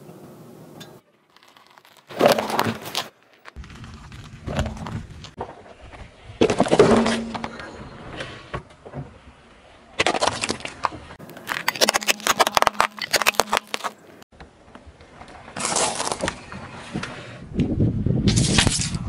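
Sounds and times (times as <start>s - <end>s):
tyre crushing brittle objects: 1.2s - 5.4s, 10.0s - 14.2s, 15.5s - 16.6s.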